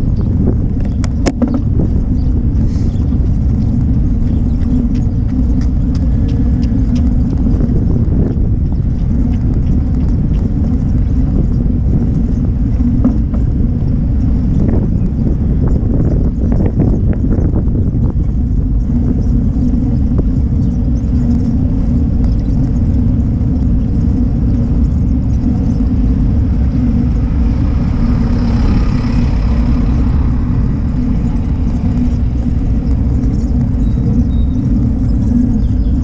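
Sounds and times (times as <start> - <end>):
wind buffeting microphone: 0.0 - 36.0
bus passing: 25.9 - 35.0.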